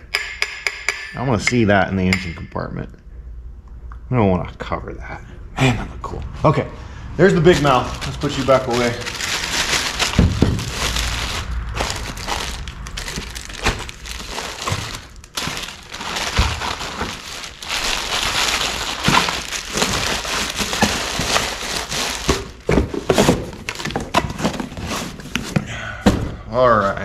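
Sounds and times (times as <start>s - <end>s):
packaging crinkling and rustling: 7.2s - 25.6s.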